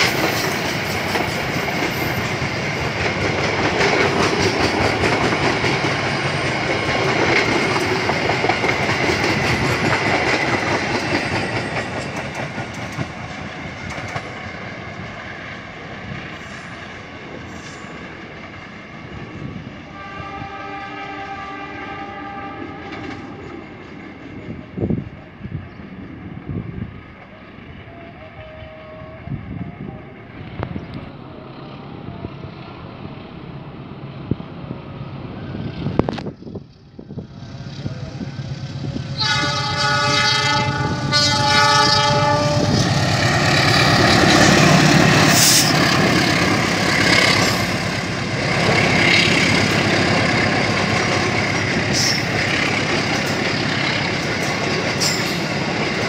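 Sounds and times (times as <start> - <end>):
train wheels clacking on rail joints: 0.0 - 14.6, 39.2 - 56.0
diesel train rumbling: 0.0 - 56.0
locomotive horn: 19.9 - 23.3, 27.8 - 29.8, 39.2 - 45.8
locomotive engine running: 34.9 - 56.0.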